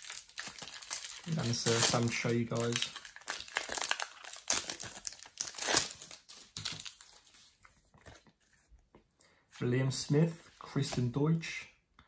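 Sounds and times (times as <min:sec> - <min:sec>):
plastic wrapper crinkling and tearing: 0:00.0 - 0:08.3.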